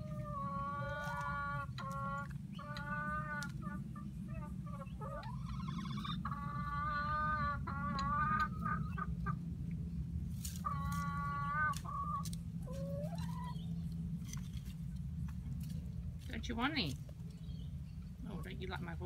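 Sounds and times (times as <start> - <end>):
hens clucking and calling: 0.0 - 14.7.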